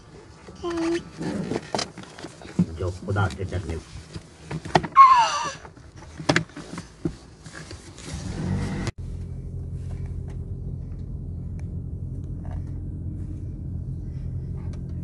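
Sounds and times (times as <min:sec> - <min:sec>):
car engine rumble inside cabin: 0:07.9 - 0:15.0.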